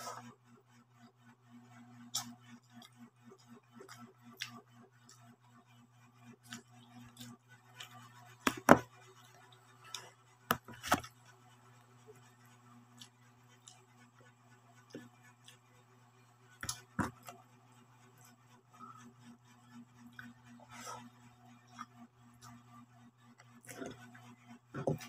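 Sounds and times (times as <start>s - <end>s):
steady low hum: 0.0s - 25.0s
person chewing: 3.8s - 5.2s, 23.6s - 24.0s.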